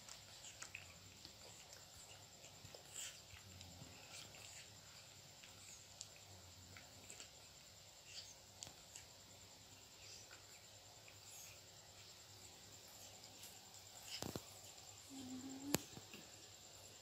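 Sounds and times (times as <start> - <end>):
baby monkey sucking bottle: 14.0 - 14.5.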